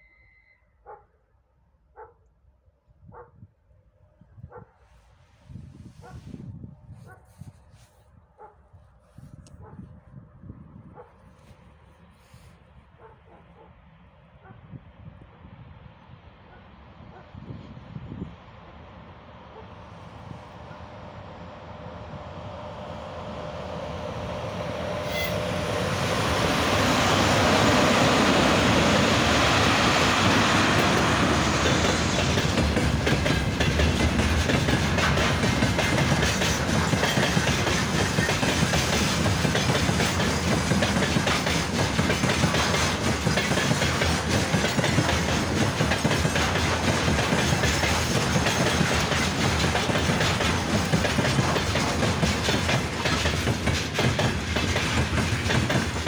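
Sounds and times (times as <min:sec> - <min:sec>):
freight train rolling past: 0:15.5 - 0:56.0
wheels clickety-clack over rail joints: 0:23.9 - 0:56.0.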